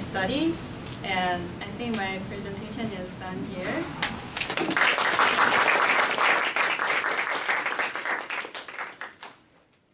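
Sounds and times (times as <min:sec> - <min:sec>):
audience applauding: 0:04.4 - 0:09.4.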